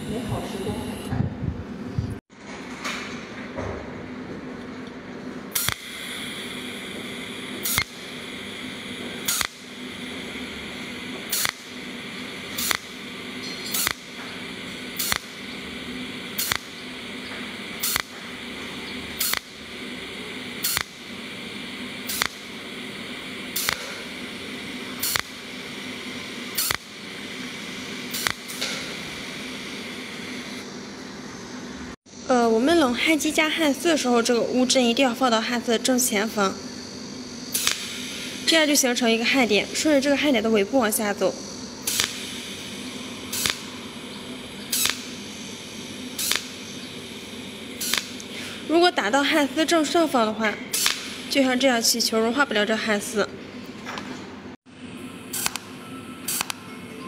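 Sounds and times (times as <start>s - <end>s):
welder hum and hiss: 0.0s - 1.3s, 5.4s - 53.2s, 54.7s - 57.0s
welding pulse snaps: 5.5s - 30.7s, 37.5s - 51.6s, 55.3s - 56.6s.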